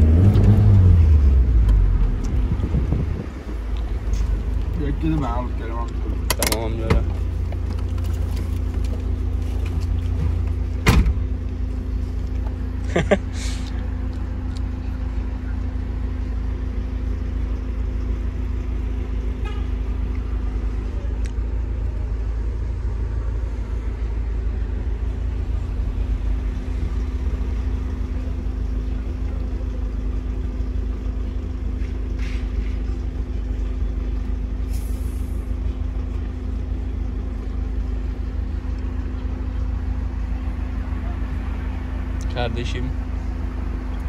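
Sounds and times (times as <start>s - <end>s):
car engine idling: 0.0s - 44.0s.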